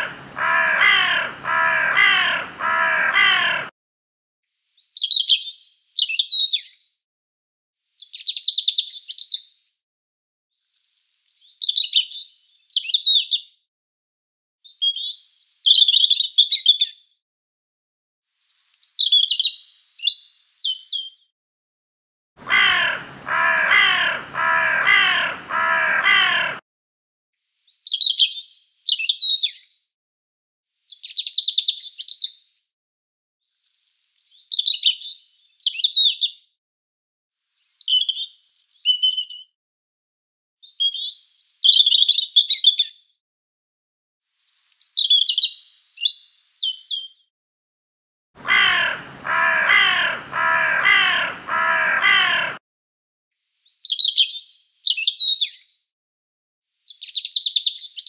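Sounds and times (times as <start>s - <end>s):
bird cawing harshly: 0.0s - 3.7s, 22.4s - 26.6s, 48.4s - 52.6s
songbird warbling: 0.0s - 3.7s, 22.4s - 26.6s, 48.4s - 52.6s.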